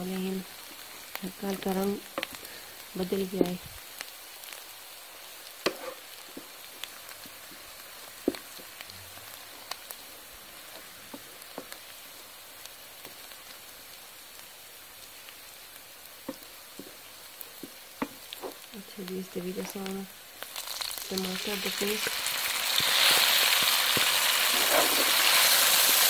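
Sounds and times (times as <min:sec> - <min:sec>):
onions sizzling in hot oil: 0:00.0 - 0:26.0
wooden spoon scraping a pan: 0:05.6 - 0:06.5, 0:23.9 - 0:25.5.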